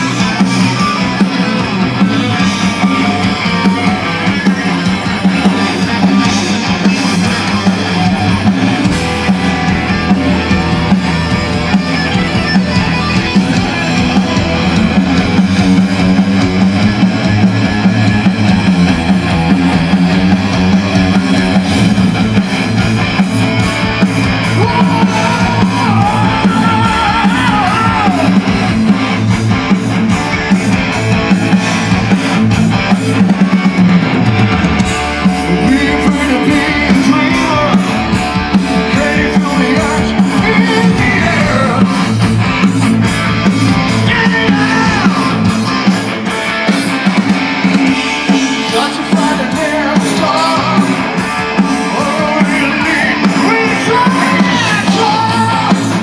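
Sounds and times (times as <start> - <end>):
bass guitar: 0.0 - 56.0
drum kit: 0.0 - 56.0
electric guitars: 0.0 - 56.0
person singing: 24.5 - 28.6, 35.4 - 38.1, 38.7 - 42.2, 44.0 - 45.5, 48.5 - 56.0.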